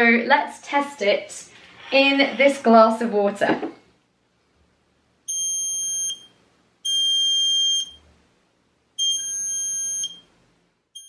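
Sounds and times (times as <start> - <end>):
high-pitched buzzer beeps: 5.3 - 6.3, 6.9 - 8.0, 9.0 - 10.3.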